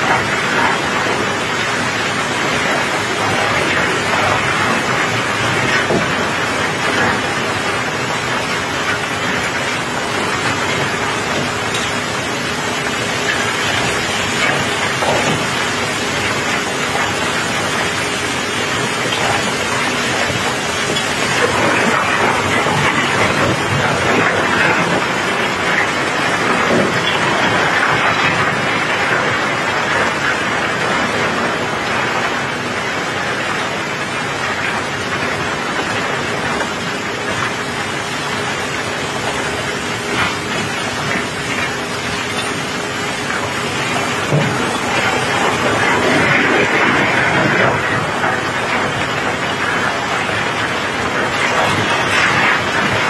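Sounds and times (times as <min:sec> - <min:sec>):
faint machine hum: 0:00.0 - 0:53.0
steady rain: 0:00.0 - 0:53.0
stones rattling down chute: 0:33.0 - 0:53.0.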